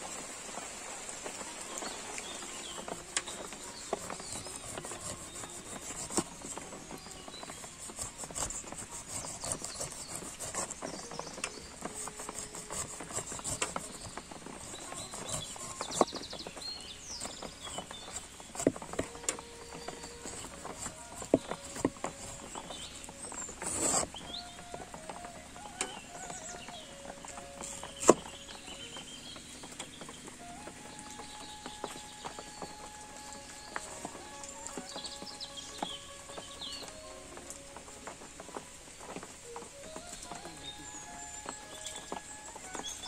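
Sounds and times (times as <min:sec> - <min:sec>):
steady high hiss: 0:00.0 - 0:09.4, 0:10.7 - 0:43.0
knife cutting pineapple rind: 0:03.2 - 0:06.4, 0:07.6 - 0:11.2, 0:11.8 - 0:16.1, 0:18.1 - 0:22.5, 0:23.6 - 0:24.2.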